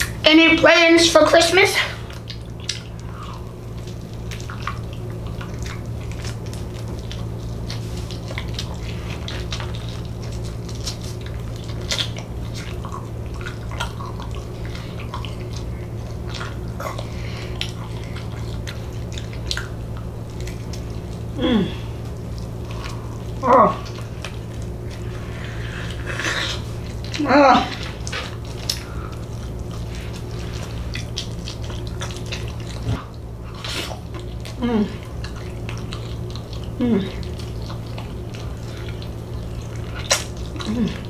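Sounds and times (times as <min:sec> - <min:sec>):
low electrical hum: 0:00.0 - 0:41.0
wet chewing: 0:00.0 - 0:41.0
mouth clicks and smacks: 0:30.2 - 0:41.0.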